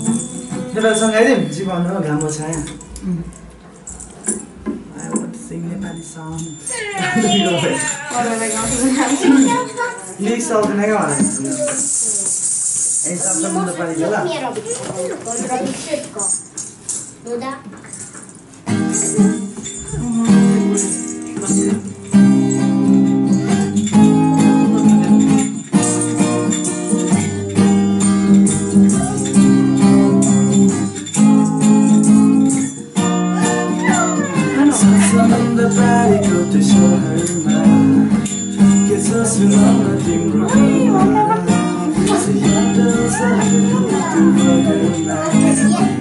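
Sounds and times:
acoustic guitar strumming: 0.0 - 16.4, 17.9 - 46.0
jingling shaker percussion: 0.0 - 46.0
person singing: 19.8 - 21.6, 33.4 - 38.3, 38.9 - 46.0.

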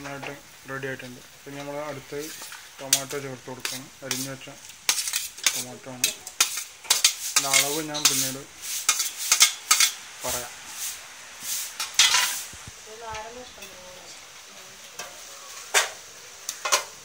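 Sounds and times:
onions sizzling: 0.0 - 17.0
metal spoon scraping plate: 4.9 - 8.3.

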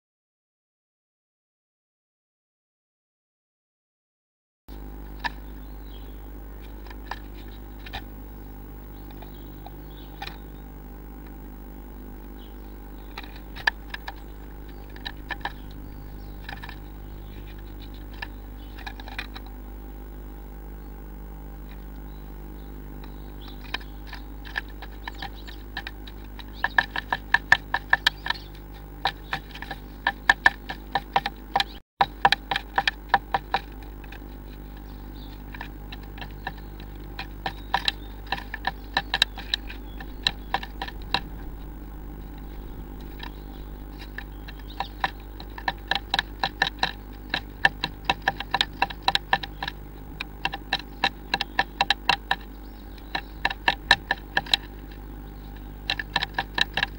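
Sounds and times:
steady low hum: 4.7 - 56.9
bird tapping on wooden box: 9.0 - 10.4, 12.5 - 19.6, 23.1 - 56.9.

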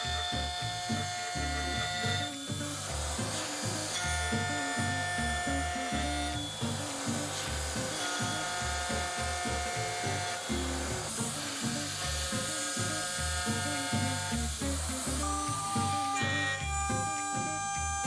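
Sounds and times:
music with stepping bass line: 0.0 - 18.0.

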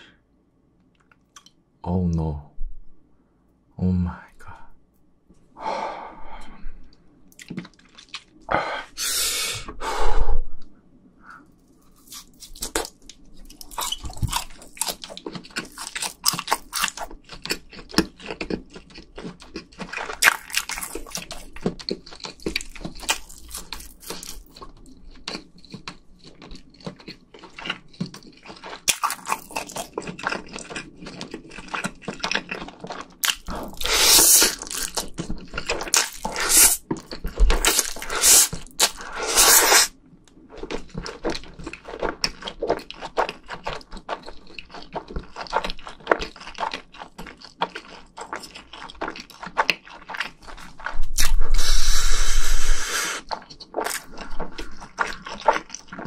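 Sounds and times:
wet chewing and crunching: 7.3 - 8.5, 11.6 - 56.0
loud noodle slurps: 33.7 - 34.6, 36.3 - 36.8, 38.0 - 39.9, 51.2 - 53.3.

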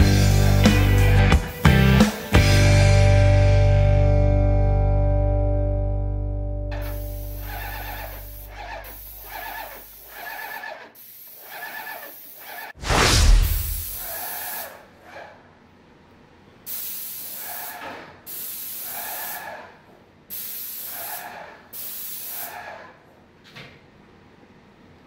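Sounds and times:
paint sprayer hissing: 6.8 - 12.8, 13.6 - 14.7, 16.7 - 19.6, 20.3 - 22.6.

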